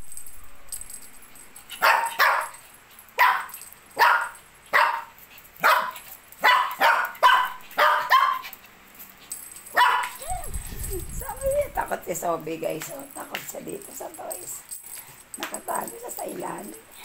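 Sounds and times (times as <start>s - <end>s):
small dog barking: 1.8s - 2.6s, 3.2s - 8.5s, 9.7s - 10.5s.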